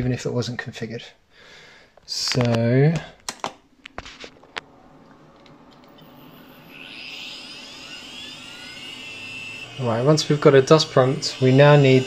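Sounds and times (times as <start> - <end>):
hard drives spinning up: 4.3 - 12.0.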